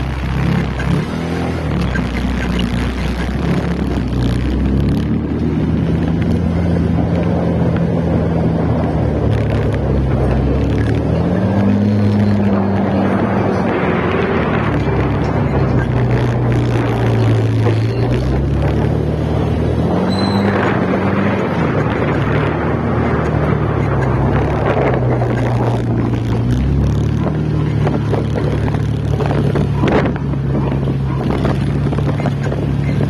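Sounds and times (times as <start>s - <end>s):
motorcycle engine running: 0.0s - 33.0s
wind on microphone: 0.0s - 33.0s
short high beep: 20.1s - 20.6s.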